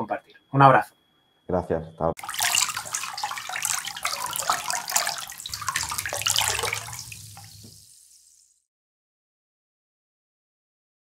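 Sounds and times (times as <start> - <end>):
rushing splashing water: 2.2 - 8.4.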